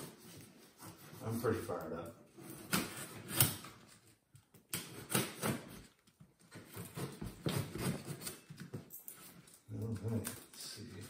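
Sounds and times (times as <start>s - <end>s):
knife slicing tape and cardboard: 2.4s - 3.8s, 4.7s - 5.8s.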